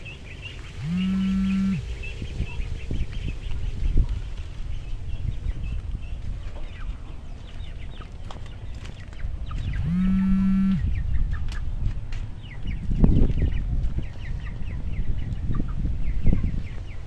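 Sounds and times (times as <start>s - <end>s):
duckling peeping: 0.0s - 11.6s
loud steady pitched tone: 0.8s - 2.2s, 9.8s - 10.9s.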